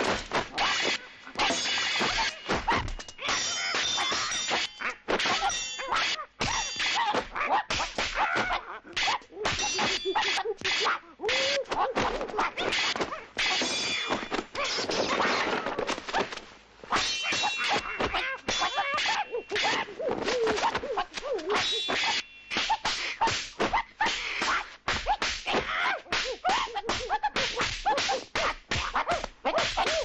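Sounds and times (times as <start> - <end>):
metallic clangs: 0.0 - 8.0, 17.0 - 19.9, 21.5 - 23.5.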